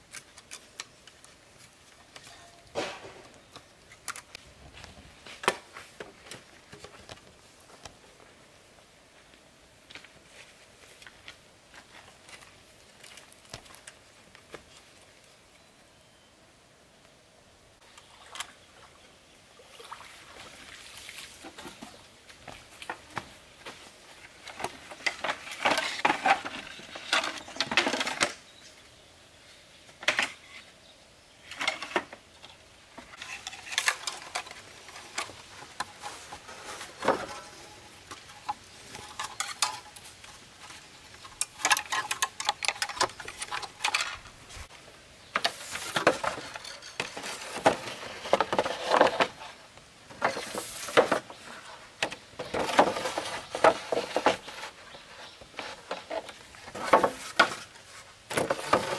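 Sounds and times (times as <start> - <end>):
bamboo poles knocking and clattering: 0.0 - 8.0, 21.4 - 28.4, 30.0 - 30.5, 31.5 - 44.7, 45.3 - 58.9.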